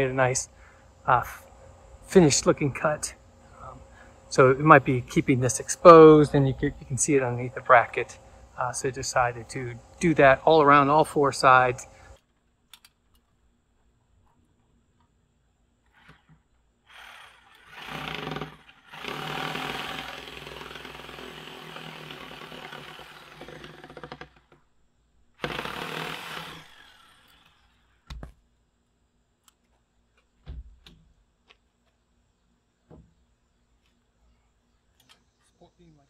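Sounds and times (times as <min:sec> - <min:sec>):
reciprocating saw cutting wood: 0:15.9 - 0:24.5, 0:25.4 - 0:28.1.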